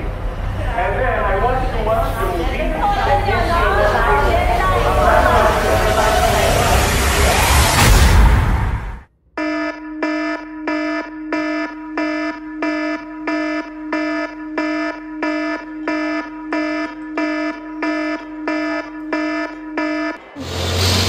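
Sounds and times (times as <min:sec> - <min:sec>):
phone alarm beeping: 0:09.4 - 0:20.4.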